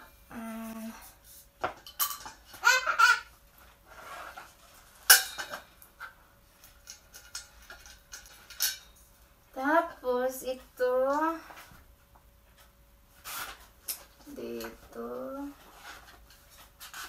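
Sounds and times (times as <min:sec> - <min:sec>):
clicks and knocks of parts: 0:05.1 - 0:09.0.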